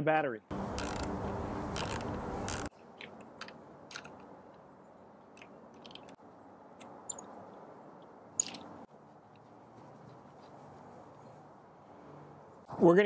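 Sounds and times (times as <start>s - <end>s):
screwdriver clicking on battery clamp: 0.8s - 1.1s.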